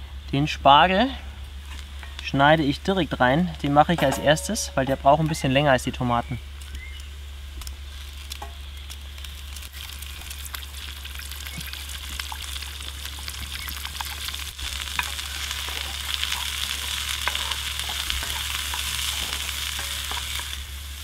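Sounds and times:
steady low hum: 0.0s - 21.0s
vegetables sizzling in a frying pan: 6.4s - 21.0s
small ticks and pops: 6.6s - 20.6s.

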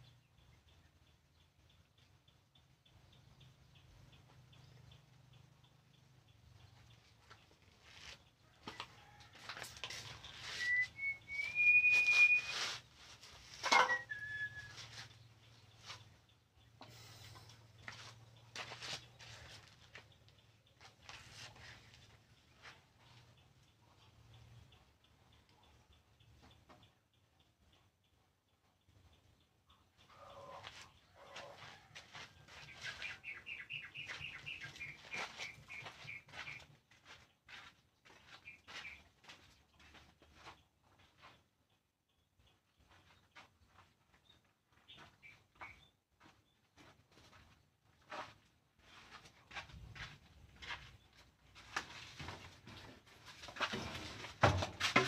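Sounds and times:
bird chirping: 0.0s - 9.2s, 10.0s - 46.9s
rustling and handling noise: 7.2s - 15.2s
high whistled tone: 10.4s - 12.8s, 13.8s - 15.0s.

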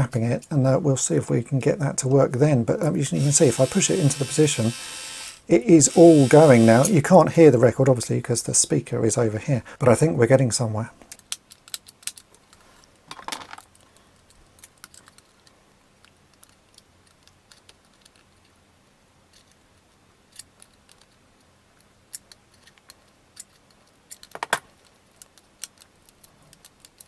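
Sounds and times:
clicks of toy mechanism: 11.1s - 12.3s, 21.8s - 27.0s.

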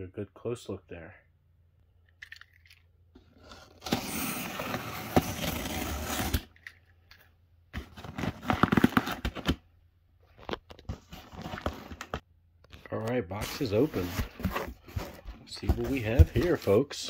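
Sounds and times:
cardboard scraping: 3.3s - 6.5s, 7.8s - 9.6s, 13.3s - 16.9s
tape tearing: 8.0s - 9.6s.

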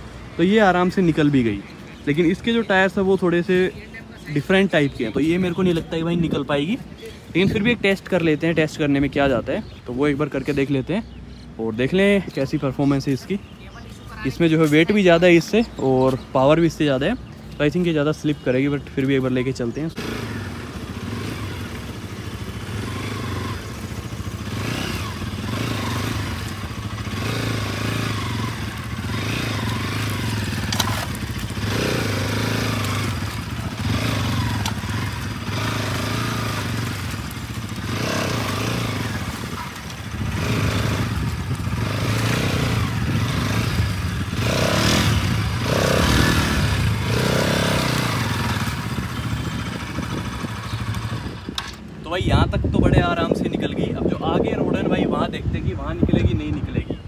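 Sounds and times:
motorcycle engine revving: 19.9s - 57.0s.

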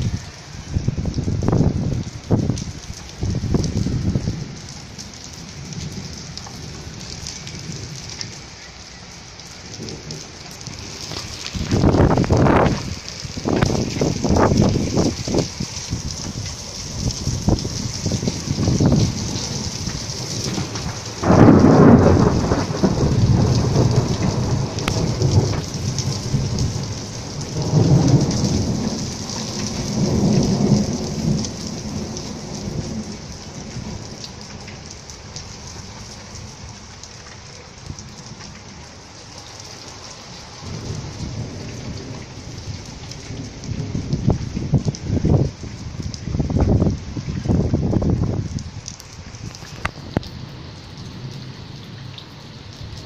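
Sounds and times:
thunder rumbling: 0.0s - 8.6s, 9.2s - 34.7s, 40.6s - 48.9s
heavy rain hissing: 0.0s - 53.0s.

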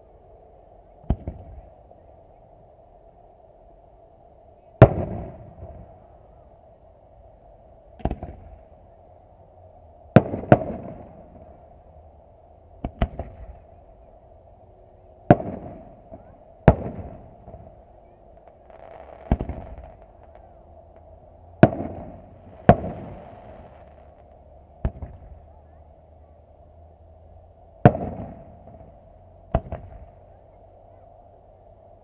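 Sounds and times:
fireworks bangs with echo: 10.1s - 11.5s, 15.3s - 25.4s, 27.8s - 28.9s, 29.5s - 30.0s.

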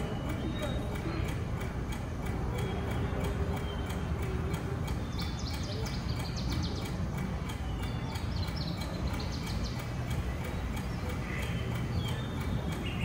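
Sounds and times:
crowd murmur in large hall: 0.0s - 7.4s
steady ticking: 0.0s - 13.0s.

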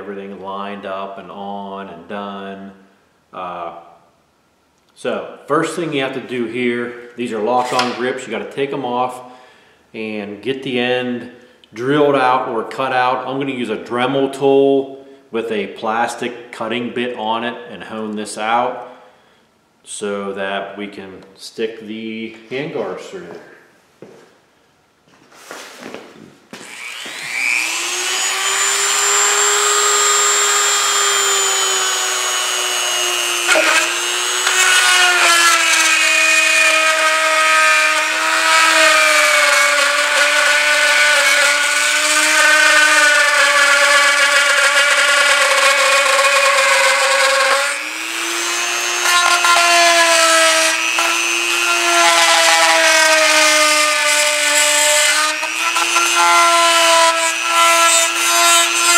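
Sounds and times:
rotary tool high whine: 26.6s - 58.9s.

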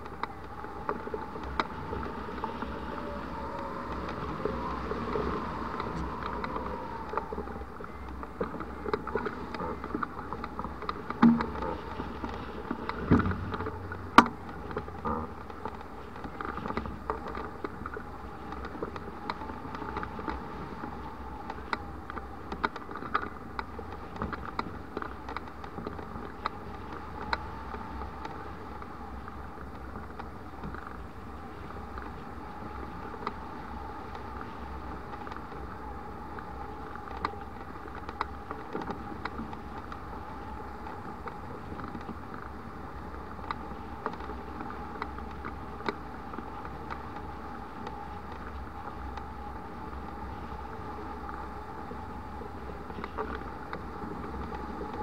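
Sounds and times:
light ticks: 0.0s - 55.0s
steady mid-pitched hum: 0.0s - 55.0s
wind buffeting microphone: 0.0s - 55.0s.

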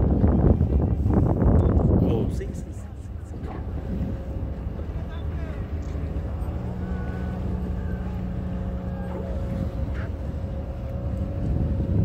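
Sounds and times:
boat engine drone: 0.0s - 12.0s
steady hum: 0.4s - 12.0s.

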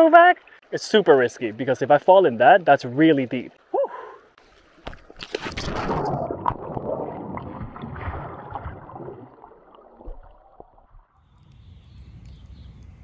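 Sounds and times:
splash into water: 4.8s - 11.1s.

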